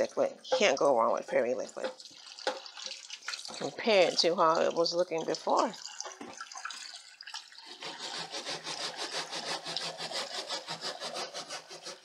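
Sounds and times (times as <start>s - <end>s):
sponge scrubbing wire-mesh basket: 7.6s - 12.0s.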